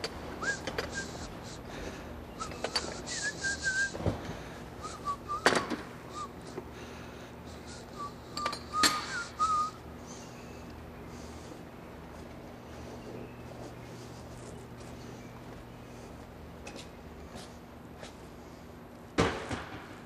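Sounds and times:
person whistling: 0.4 - 1.3, 2.4 - 4.0, 4.8 - 6.4, 7.7 - 9.8.

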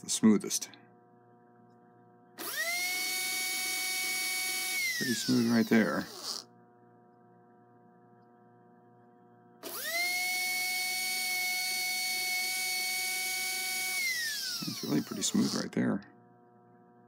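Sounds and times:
faint hum: 0.0 - 17.0
small motor high whine: 2.4 - 6.5, 9.6 - 15.7.

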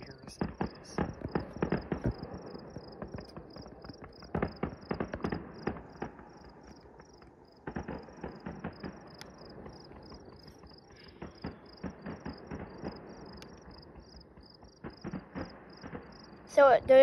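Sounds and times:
distant fireworks popping: 0.0 - 17.0
insect chirping: 8.2 - 16.4.

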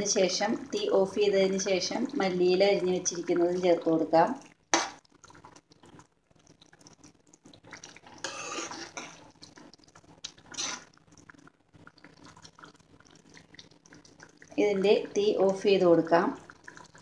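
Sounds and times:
metal ladle stirring thick curry: 8.2 - 9.1, 10.5 - 10.9.

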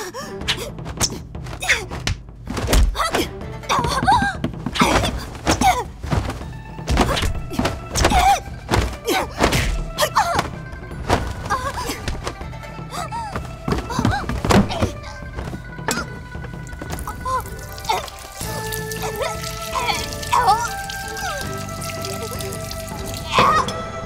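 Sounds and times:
background music: 0.0 - 24.0
punches thudding and swishing: 0.4 - 3.3, 4.0 - 12.5, 13.7 - 16.0.

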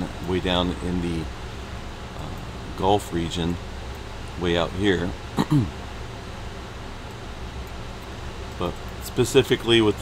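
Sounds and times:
person speaking: 0.0 - 1.3
low hum with faint hiss: 0.0 - 10.0.

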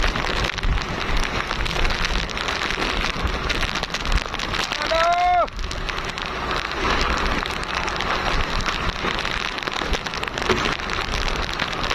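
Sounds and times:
microphone wind crackles: 0.0 - 11.9
person voice call: 4.7 - 5.5.

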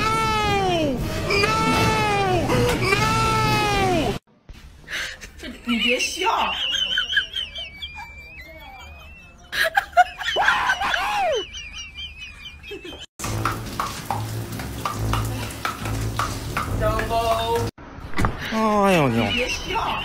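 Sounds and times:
loud squealing cry: 1.2 - 4.2.

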